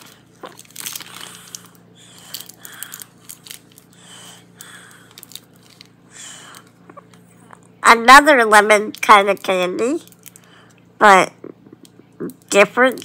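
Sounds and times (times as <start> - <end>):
foil wrapper crinkling: 0.0 - 4.0, 4.6 - 6.8.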